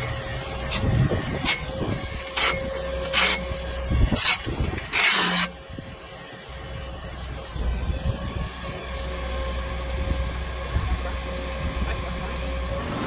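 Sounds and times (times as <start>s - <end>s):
truck engine idling: 0.0s - 13.0s
short rasping scrapes: 4.1s - 5.5s.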